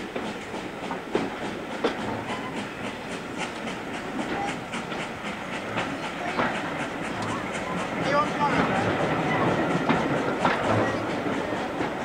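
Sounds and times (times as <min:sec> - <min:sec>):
train wheels clicking: 0:00.0 - 0:12.0.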